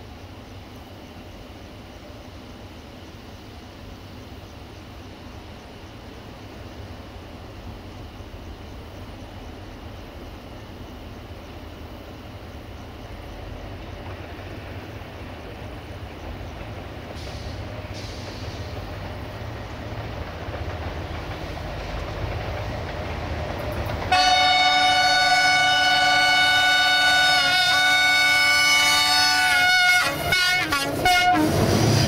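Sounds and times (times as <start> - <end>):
diesel locomotive engine rumble: 0.0 - 32.0
locomotive horn blast: 24.1 - 32.0.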